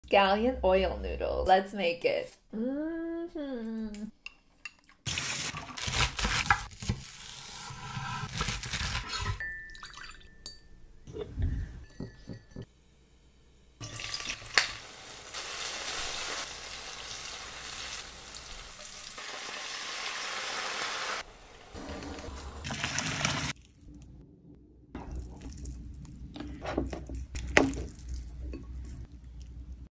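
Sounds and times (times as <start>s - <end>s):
noodles rushing into boiling water: 19.2s - 23.6s
wet squishing of noodles: 25.0s - 29.9s.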